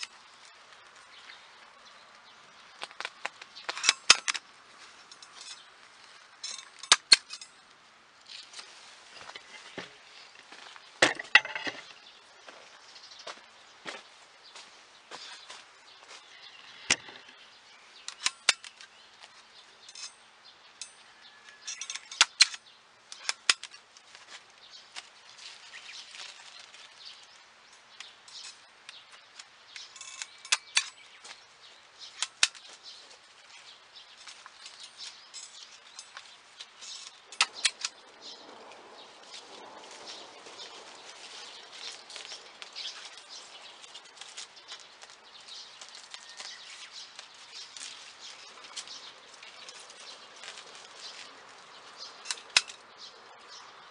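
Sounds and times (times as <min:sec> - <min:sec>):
leaves rustling: 0:00.0 - 0:53.9
tape-tying tool snapping clicks: 0:37.0 - 0:38.0.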